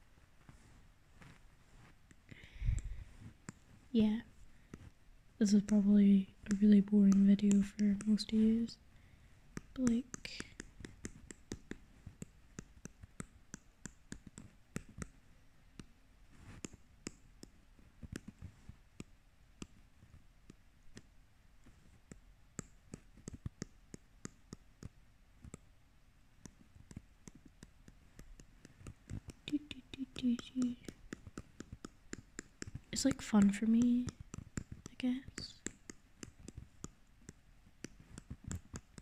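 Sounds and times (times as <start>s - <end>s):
stylus tapping on glass screen: 6.5s - 8.5s.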